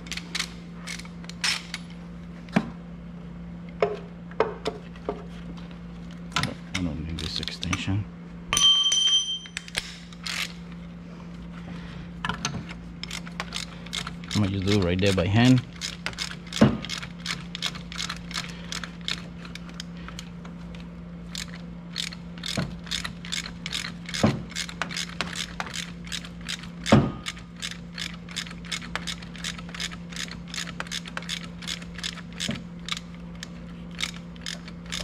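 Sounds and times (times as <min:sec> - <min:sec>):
steady low hum: 0:00.0 - 0:35.0
ratchet wrench clicking: 0:09.5 - 0:10.6, 0:13.0 - 0:19.9, 0:21.3 - 0:35.0.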